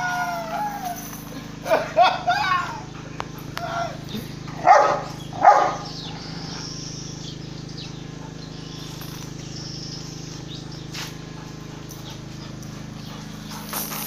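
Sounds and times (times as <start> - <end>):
steady low hum: 0.0 - 14.0
dog barking: 4.6 - 5.9
faint bird chirps: 5.2 - 11.2.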